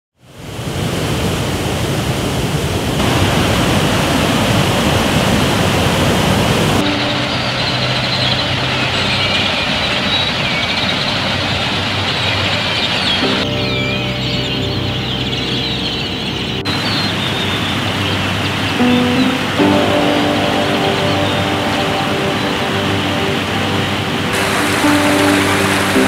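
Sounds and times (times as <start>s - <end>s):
water rushing over a dam: 0.2s - 13.4s, 16.7s - 26.0s
birds calling: 6.8s - 26.0s.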